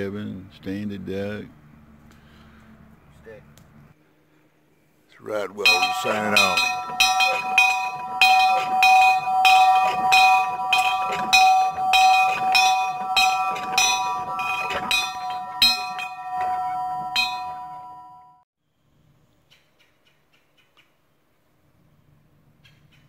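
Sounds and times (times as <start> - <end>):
bell ringing on: 5.4 - 18.4
bell clapper strikes: 5.6 - 18.3.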